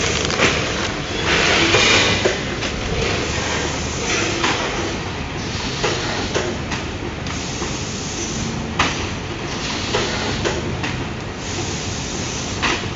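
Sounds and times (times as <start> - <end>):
packaging machine running: 0.0 - 4.6.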